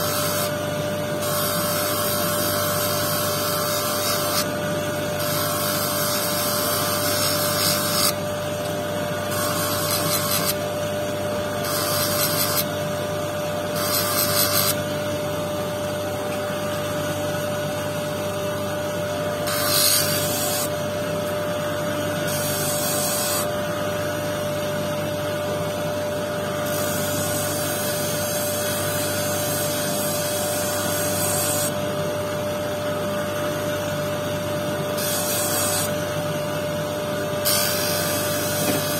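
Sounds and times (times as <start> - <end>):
electric motor humming: 0.0 - 24.4, 34.4 - 38.9
stone grinding on disc: 1.2 - 4.6, 5.2 - 8.2, 9.2 - 10.6, 11.6 - 12.7, 13.7 - 14.8, 19.4 - 20.7, 35.0 - 35.9.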